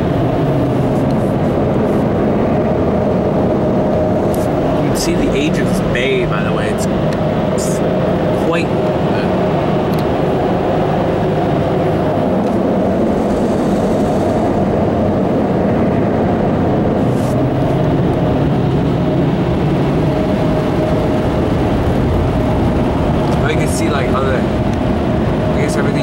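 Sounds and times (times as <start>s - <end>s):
car wash air blowers rushing: 0.0s - 26.0s.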